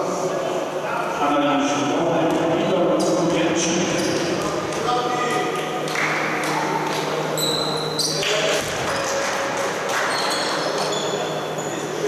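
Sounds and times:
shoes squeaking: 0:07.4 - 0:09.2, 0:10.0 - 0:12.0.

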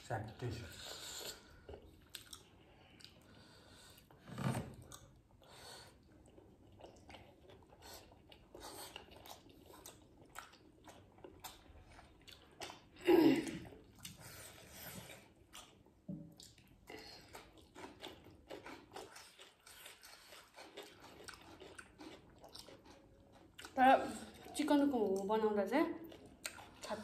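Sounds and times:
people chewing wet smacking: 0:00.2 - 0:04.2, 0:04.8 - 0:27.0.

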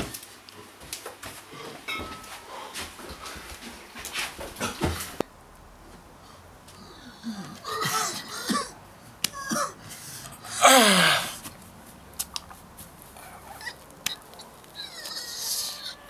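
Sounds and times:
man yelping and whining: 0:10.4 - 0:11.4.

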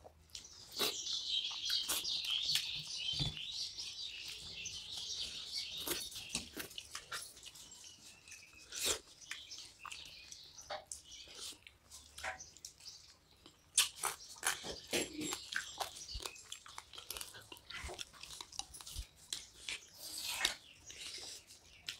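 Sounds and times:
wet chewing and mouth smacks: 0:00.0 - 0:03.4, 0:04.2 - 0:21.9
birds chirping: 0:00.0 - 0:21.9
fingers squishing rice on plates: 0:00.0 - 0:21.9.

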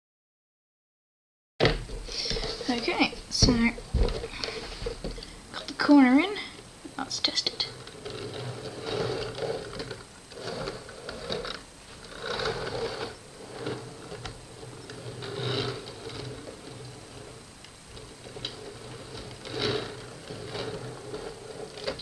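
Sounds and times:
low steady hum: 0:01.6 - 0:22.0
model train whirring and clattering: 0:07.4 - 0:22.0.

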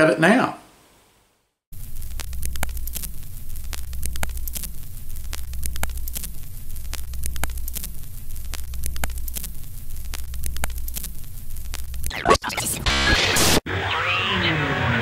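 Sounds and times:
static crackle: 0:00.9 - 0:14.4
sharp clicks: 0:01.9 - 0:13.6.

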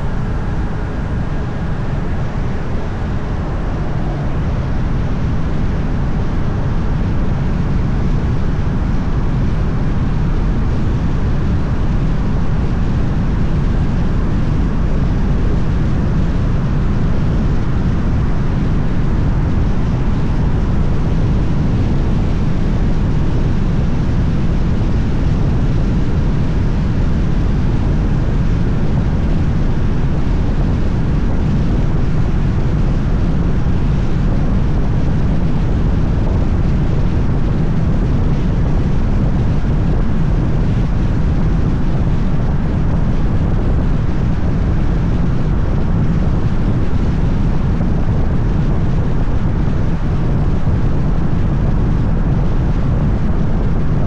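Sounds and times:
wind and road noise rumble: 0:00.0 - 0:54.0.

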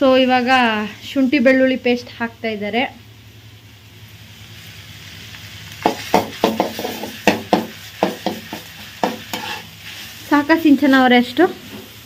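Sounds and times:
vegetables sizzling in a pan: 0:00.0 - 0:12.0
steel ladle scraping a pan: 0:06.6 - 0:07.4, 0:08.1 - 0:10.3.

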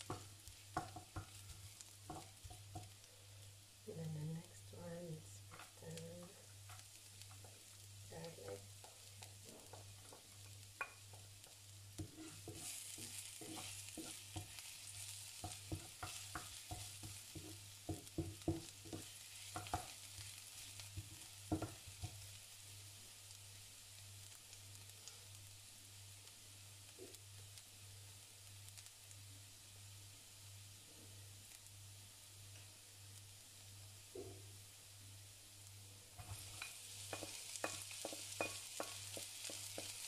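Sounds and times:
spatula tapping against pan: 0:00.0 - 0:03.0, 0:09.6 - 0:20.0, 0:20.8 - 0:22.2, 0:36.2 - 0:40.0
garlic sizzling in oil: 0:00.0 - 0:40.0
wooden spatula scraping pan: 0:12.0 - 0:19.9, 0:36.2 - 0:40.0.

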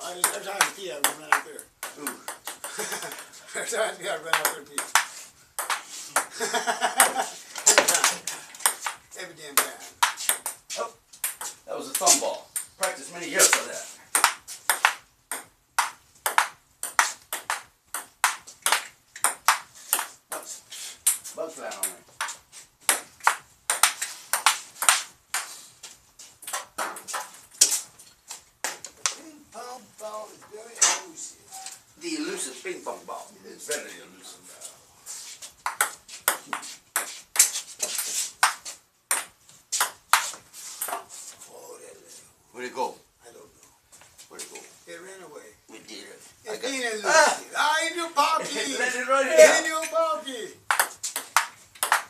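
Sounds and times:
ping-pong ball clicking: 0:04.3 - 0:05.8, 0:14.1 - 0:20.1, 0:35.6 - 0:37.5, 0:50.7 - 0:52.0
table tennis ball clicking: 0:50.7 - 0:52.0.

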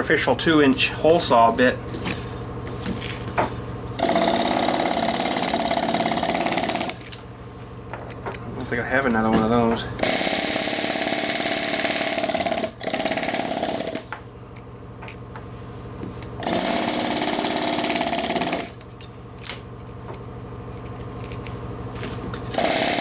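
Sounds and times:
pneumatic air hammer chiselling: 0:04.0 - 0:07.2, 0:10.0 - 0:14.1, 0:16.4 - 0:18.8, 0:22.2 - 0:23.0.

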